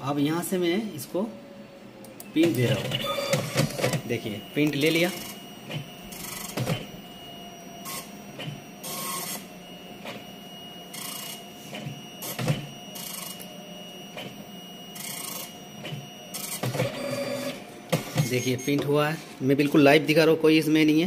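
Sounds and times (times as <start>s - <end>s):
dot-matrix printer buzzing: 2.2s - 20.2s
dull printer clunks: 2.4s - 4.1s, 17.9s - 19.0s.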